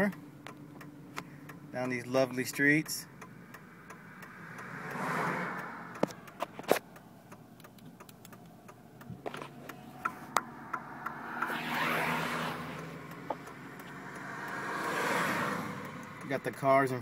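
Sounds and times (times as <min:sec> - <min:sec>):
faint low engine hum: 0:00.0 - 0:04.6
rush of noise: 0:10.2 - 0:13.5.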